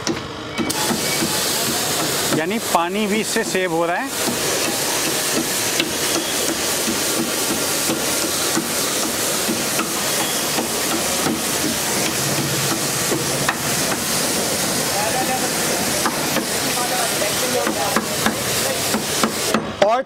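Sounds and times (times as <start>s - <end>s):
pressure washer spraying: 0.7s - 19.6s.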